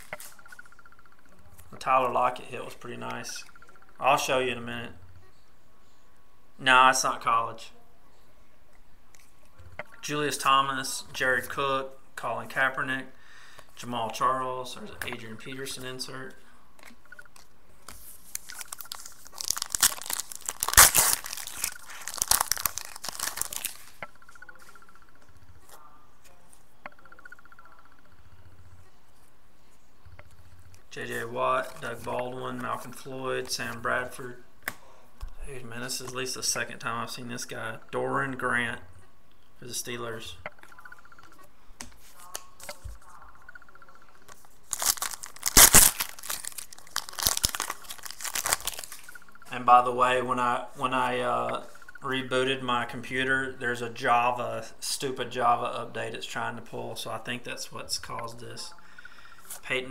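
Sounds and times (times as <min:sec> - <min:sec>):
foil wrapper tearing and crinkling: 0:17.9 - 0:24.0, 0:44.6 - 0:49.1.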